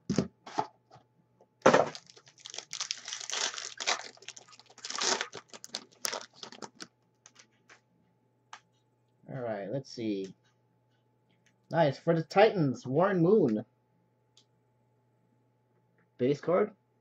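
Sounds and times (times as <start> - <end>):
plastic wrapping crinkling: 1.7 - 7.5
trading cards rustling: 1.9 - 7.5.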